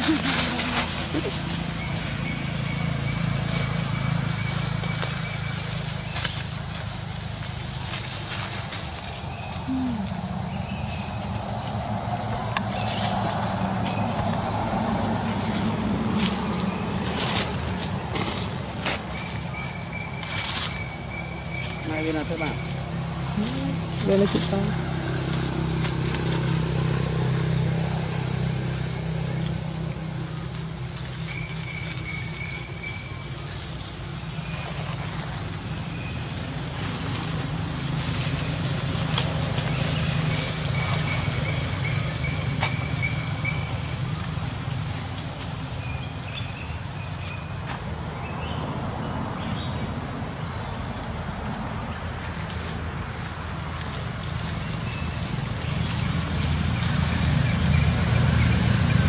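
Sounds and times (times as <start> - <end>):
rustles of dry leaves: 0.0 - 59.0
thin whistled calls: 31.2 - 33.4.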